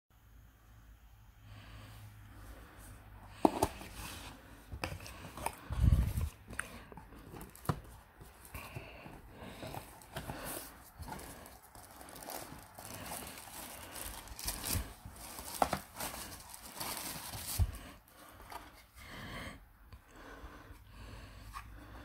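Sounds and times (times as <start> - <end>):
wrapping rustling and tearing: 9.6 - 17.8.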